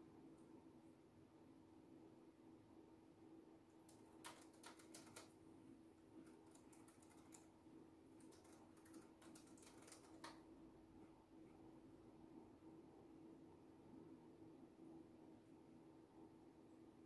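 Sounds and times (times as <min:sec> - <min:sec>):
faint steady hum: 0:00.0 - 0:17.0
typing on a keyboard: 0:03.8 - 0:05.4, 0:06.2 - 0:07.6, 0:08.2 - 0:10.5.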